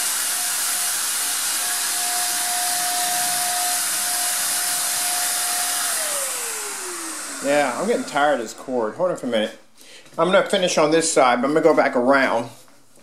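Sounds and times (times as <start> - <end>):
hiss of air and paint mist: 0.0 - 8.9
paint sprayer motor whine: 0.0 - 9.5.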